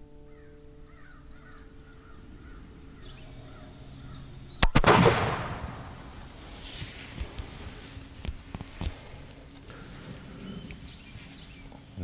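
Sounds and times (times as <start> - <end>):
revolver gunshot with echo: 4.6 - 6.3.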